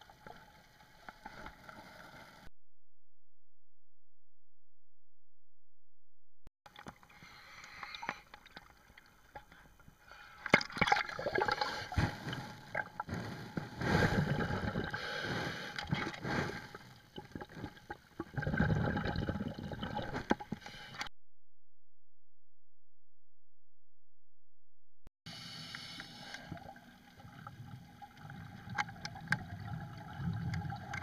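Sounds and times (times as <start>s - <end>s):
underwater gurgling bubbles: 15.8s - 20.5s, 26.6s - 31.0s.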